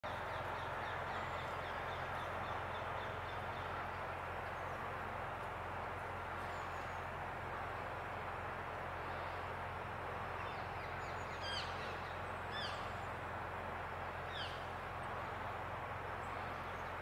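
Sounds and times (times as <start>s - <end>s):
distant city traffic hum: 0.0s - 17.0s
high bird calls: 10.4s - 13.1s.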